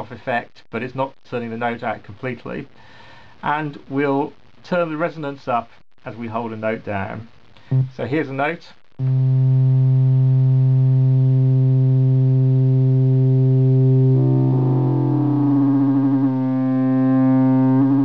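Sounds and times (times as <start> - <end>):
synthesizer low note: 9.0 - 18.0.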